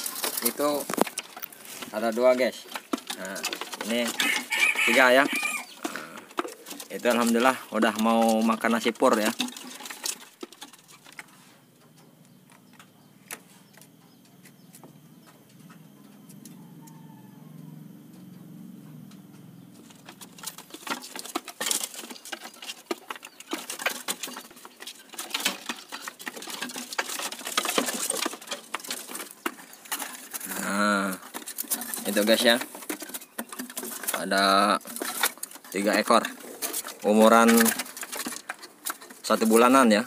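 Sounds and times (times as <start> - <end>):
chicks pecking clicks and taps: 0.0 - 11.3, 19.0 - 40.0
faint low hum: 10.9 - 20.8.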